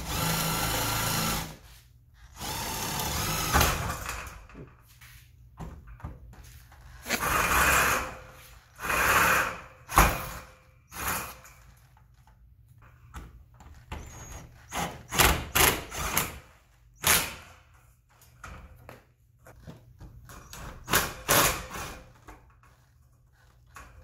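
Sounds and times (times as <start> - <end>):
cordless drill running: 0.0 - 1.6, 2.2 - 3.9, 7.0 - 11.4.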